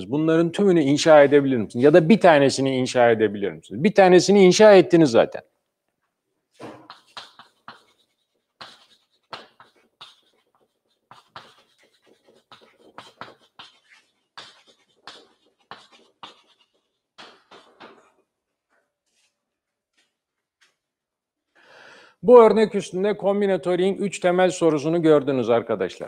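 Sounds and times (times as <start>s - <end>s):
chalk writing on chalkboard: 6.8s - 18.1s.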